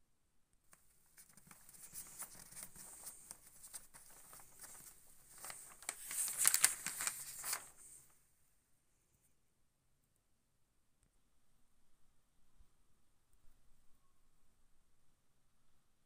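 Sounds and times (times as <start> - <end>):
blind sheet rustling and crinkling: 0.8 - 8.1.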